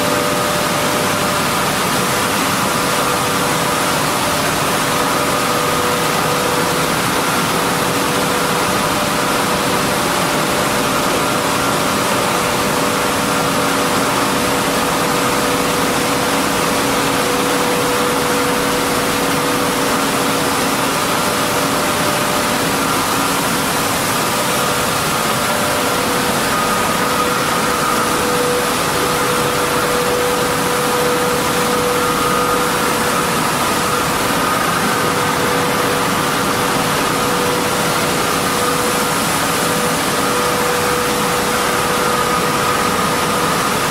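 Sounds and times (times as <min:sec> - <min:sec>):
loud machine noise: 0:00.0 - 0:43.9
machinery humming: 0:00.0 - 0:43.9.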